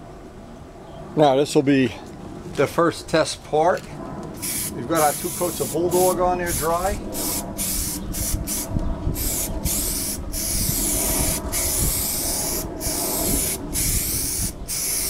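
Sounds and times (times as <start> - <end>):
aerosol spray can hissing: 4.4 - 15.0.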